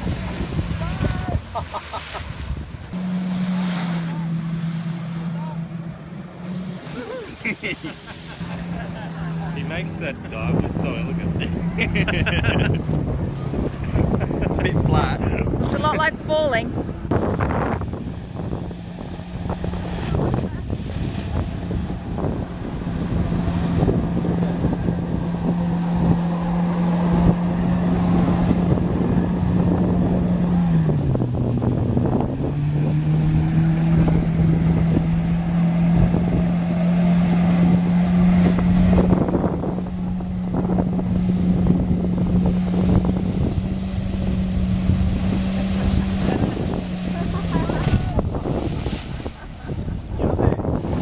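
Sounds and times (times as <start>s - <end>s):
watercraft engine drone: 0.0s - 51.0s
water jets hissing: 6.8s - 9.0s, 42.7s - 49.7s.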